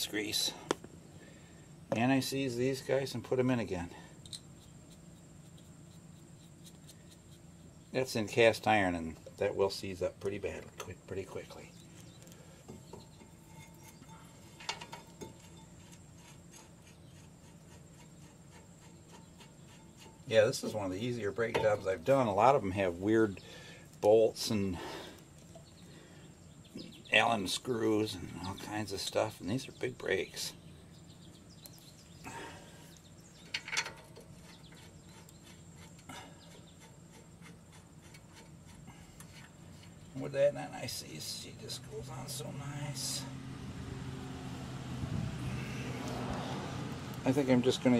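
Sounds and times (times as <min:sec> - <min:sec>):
low steady hum: 0:00.0 - 0:47.9
metal bolt clinks and scrapes: 0:04.2 - 0:04.7, 0:13.0 - 0:20.3, 0:33.4 - 0:36.0.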